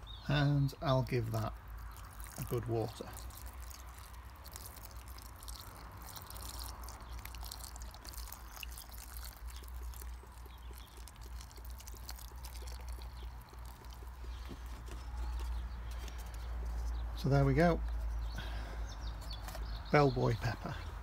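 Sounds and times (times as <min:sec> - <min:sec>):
water pouring onto compost: 0:00.8 - 0:16.5
water trickling and dripping: 0:01.2 - 0:15.9.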